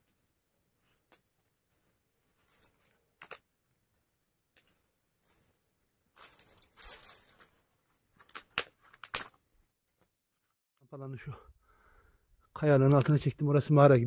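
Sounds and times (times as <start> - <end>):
dry twigs rustling and crackling: 0.8 - 3.5, 4.5 - 9.4
twigs snapping: 2.5 - 3.5, 8.2 - 9.4.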